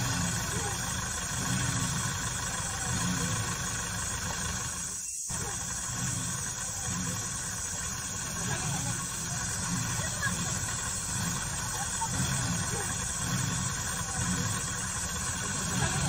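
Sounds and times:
car engine rumbling: 0.0 - 16.0.

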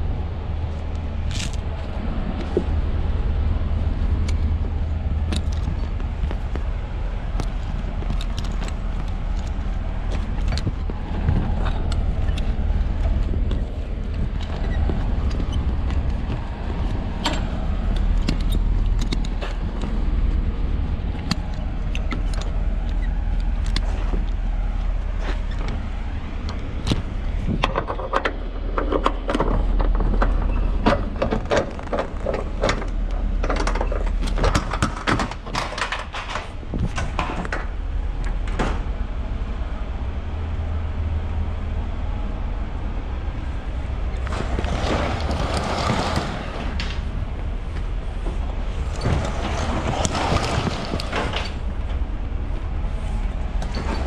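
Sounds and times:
steady low rumble: 0.0 - 54.0
metal buckles clicking: 1.3 - 1.7, 5.2 - 37.6.

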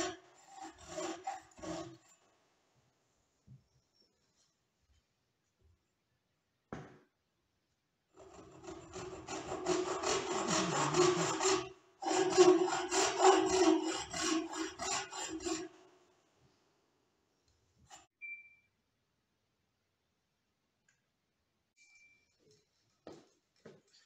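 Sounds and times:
saw rasping through wood: 0.0 - 2.2, 8.2 - 16.0.

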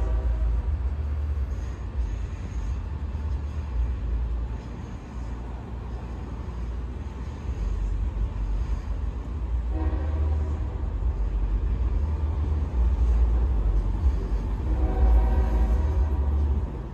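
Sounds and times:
train horn blast: 0.0 - 1.1, 9.6 - 11.6, 12.4 - 16.7
train rumble: 0.0 - 16.9.

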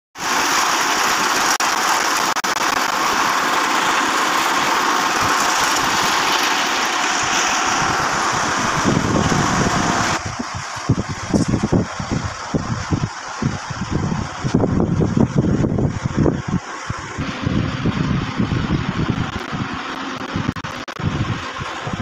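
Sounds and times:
machine engine hissing: 0.2 - 22.0
low fluttering rumble: 2.0 - 22.0.

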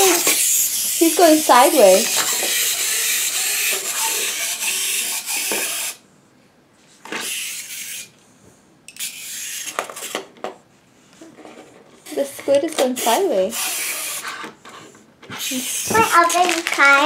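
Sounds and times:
clockwork toy whirring: 0.0 - 6.0, 7.0 - 8.1, 8.9 - 10.3, 12.0 - 17.0
toy clicking and rattling: 0.0 - 6.0, 7.2 - 8.1, 15.4 - 17.0.

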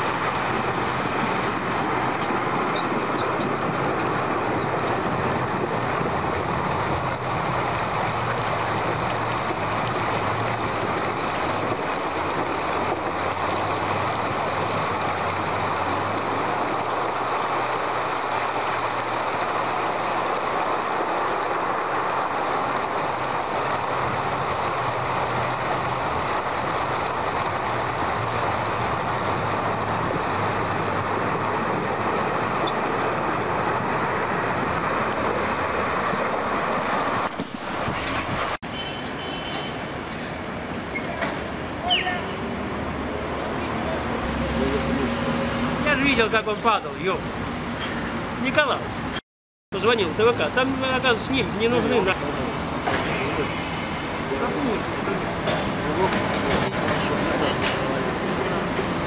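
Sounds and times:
river water rushing: 0.0 - 49.2, 49.8 - 59.0
truck engine humming: 38.6 - 49.2.

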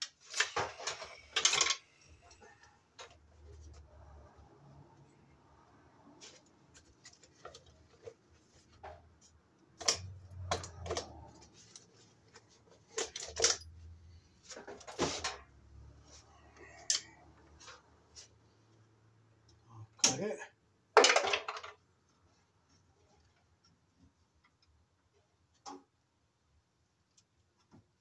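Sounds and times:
metallic clicks of hand tools: 16.8 - 17.2.

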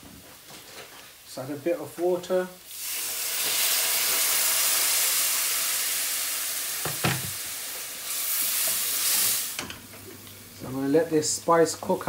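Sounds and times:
water sizzling in hot wok: 2.6 - 9.9.

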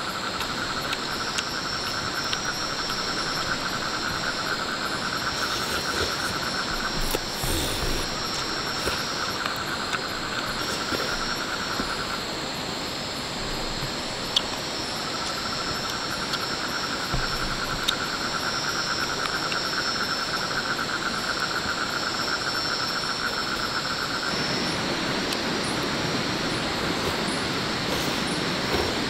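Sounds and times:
fast pulsing insect trill: 0.0 - 29.0
high steady insect tone: 0.0 - 29.0
insects trilling: 0.0 - 29.0
steady rushing noise: 24.0 - 29.0.

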